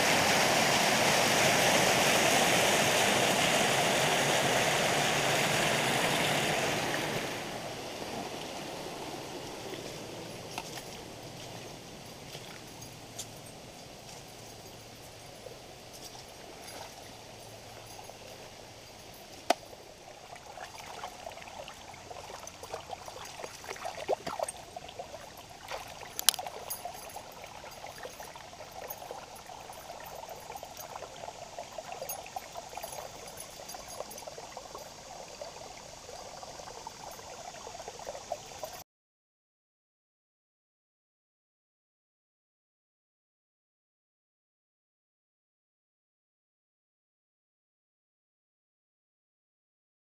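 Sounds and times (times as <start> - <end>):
river water splashing over rocks: 0.0 - 38.8.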